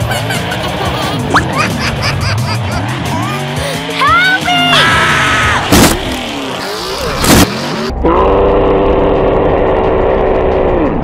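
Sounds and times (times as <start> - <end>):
truck engine revving: 0.0 - 11.0
sharp crash: 5.6 - 6.3.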